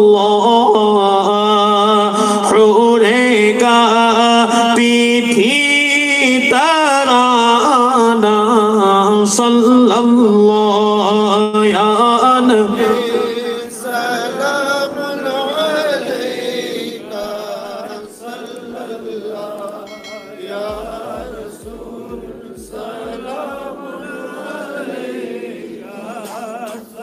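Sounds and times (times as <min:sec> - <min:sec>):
man chanting into a microphone: 0:00.0 - 0:24.6, 0:25.8 - 0:27.0
low thumps: 0:20.0 - 0:23.8.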